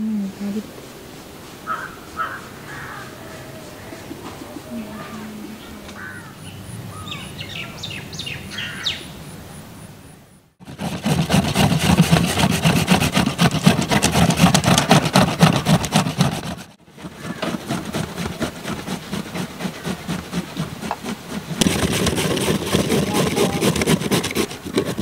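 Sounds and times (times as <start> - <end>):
carrots grating on metal graters: 10.6 - 25.0.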